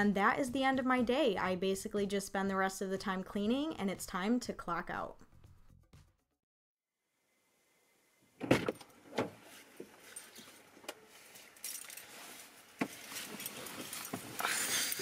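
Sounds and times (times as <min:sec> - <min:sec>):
keys jangling: 0:11.4 - 0:12.2.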